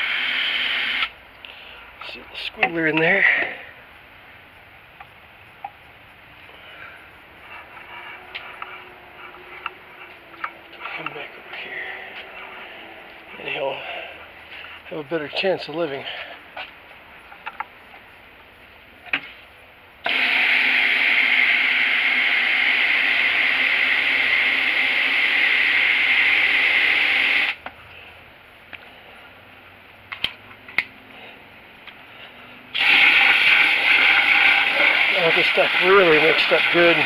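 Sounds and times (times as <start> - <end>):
hose spraying water into bucket: 0.0 - 1.1, 20.1 - 27.6, 32.8 - 37.0.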